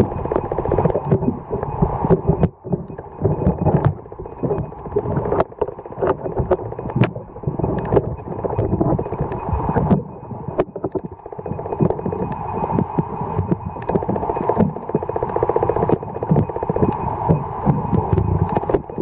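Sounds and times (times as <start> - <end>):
muffled underwater rumble of water: 0.0 - 19.0
sharp clicks and knocks: 0.0 - 19.0.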